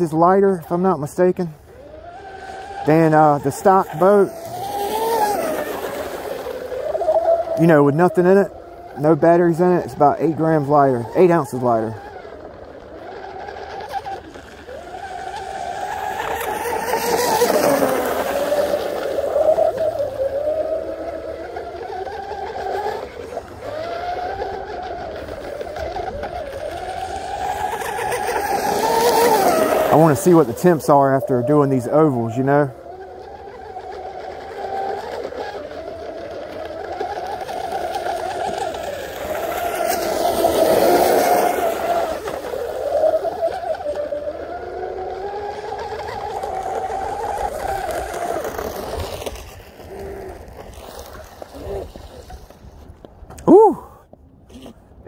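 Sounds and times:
rc boat motor high whine: 0.0s - 55.0s.

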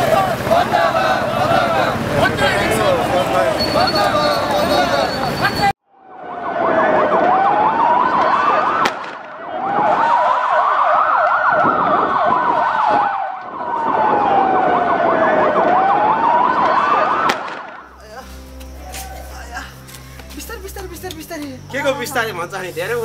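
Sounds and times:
fast siren warble: 3.5s - 8.8s, 9.4s - 17.3s
electronic siren wailing: 3.6s - 18.0s.

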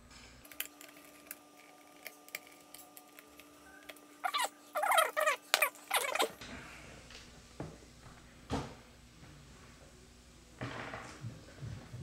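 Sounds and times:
screwdriver squeaks: 4.2s - 6.3s.

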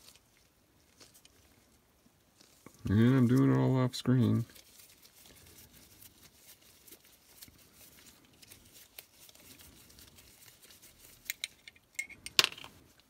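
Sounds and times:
small clicks and rustles: 0.0s - 3.4s, 4.3s - 13.0s.

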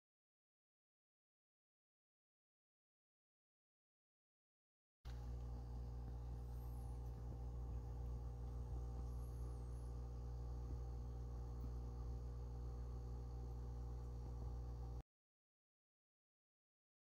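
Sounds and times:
low electrical hum: 5.1s - 15.0s.

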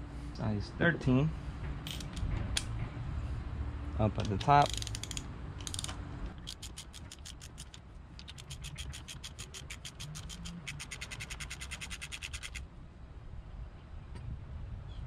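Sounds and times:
socket ratchet clicking: 4.2s - 12.6s.

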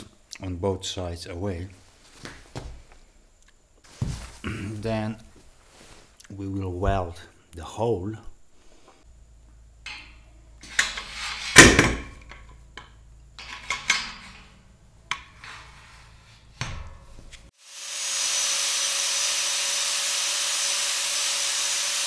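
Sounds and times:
angle grinder grinding steel: 17.6s - 22.0s.

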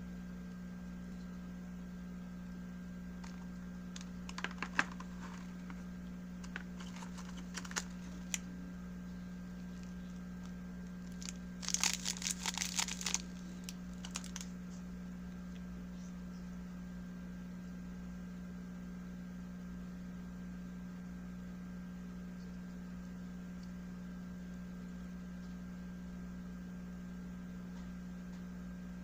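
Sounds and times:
low electrical hum: 0.0s - 29.0s
plastic wrapping crinkling: 3.2s - 5.8s, 6.4s - 8.5s, 9.7s - 14.5s
plastic parts clicking: 11.0s - 14.4s.

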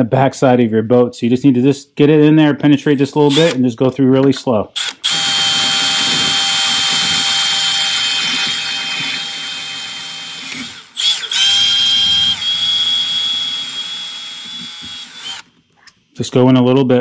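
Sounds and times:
cordless drill whining: 3.2s - 3.6s, 4.8s - 15.6s.

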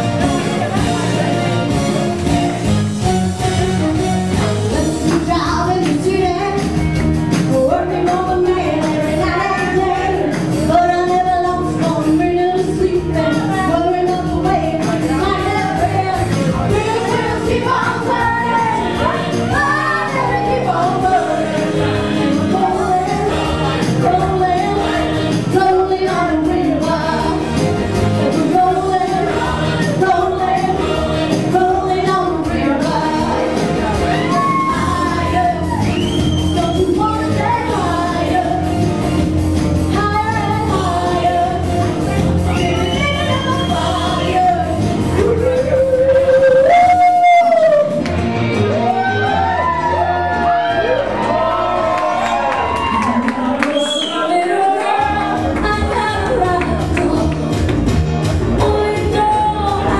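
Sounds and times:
pop-rock backing music: 0.0s - 59.9s
person singing into microphone: 7.5s - 38.8s, 39.9s - 41.8s, 42.4s - 48.0s, 58.5s - 59.9s.

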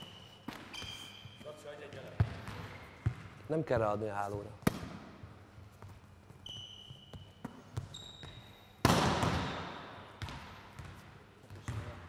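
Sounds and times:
sports shoes squeaking: 0.0s - 3.4s, 5.3s - 8.8s
volleyball struck with echo: 4.6s - 5.2s, 8.8s - 11.0s.

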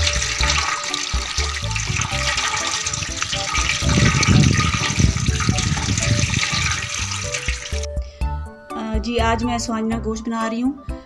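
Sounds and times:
tap water pouring: 0.0s - 7.9s.

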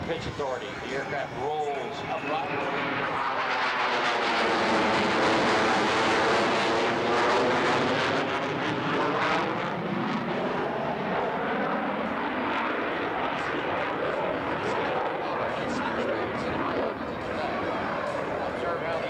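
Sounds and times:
fighter jet flyby: 0.0s - 19.0s.

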